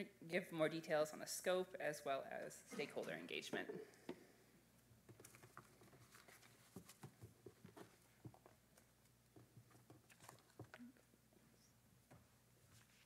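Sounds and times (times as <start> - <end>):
faint clicks and taps: 5.0 - 11.0.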